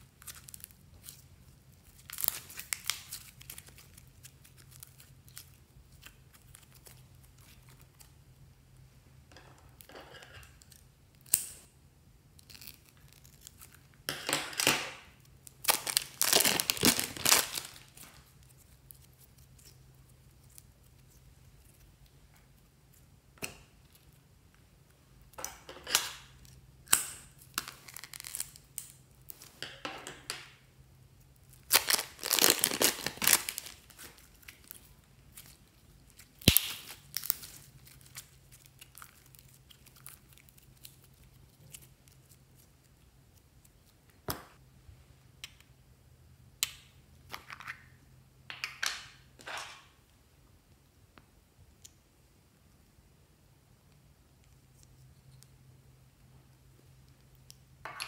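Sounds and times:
plastic crinkling: 0:15.4 - 0:19.8, 0:27.5 - 0:29.4, 0:31.5 - 0:42.7.

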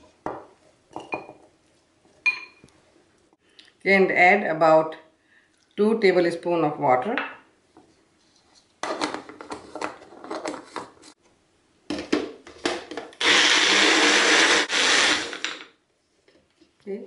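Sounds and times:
blender motor grinding: 0:13.2 - 0:15.6.

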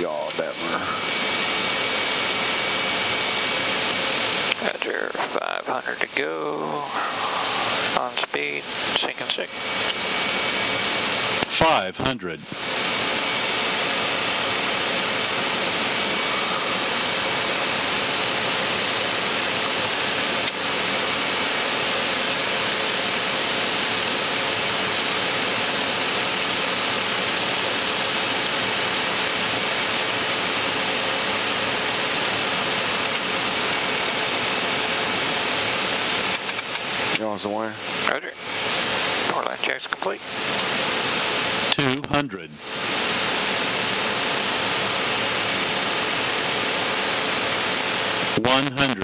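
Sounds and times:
jet airflow and engine noise: 0:00.0 - 0:49.0.

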